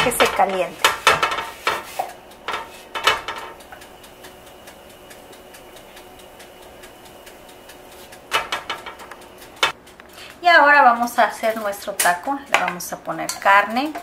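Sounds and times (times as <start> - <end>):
light ticking: 2.0 - 12.2.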